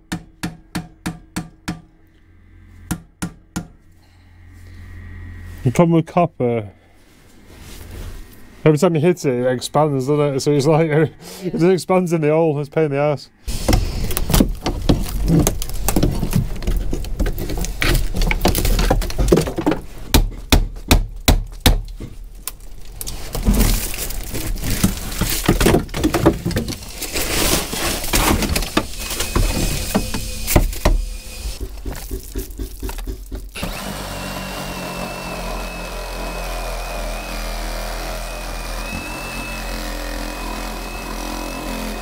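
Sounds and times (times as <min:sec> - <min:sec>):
hand tools knocking on wood: 0:00.0 - 0:01.9, 0:02.9 - 0:03.8, 0:29.3 - 0:33.6
cordless power tool whining: 0:26.8 - 0:31.6, 0:33.6 - 0:42.0.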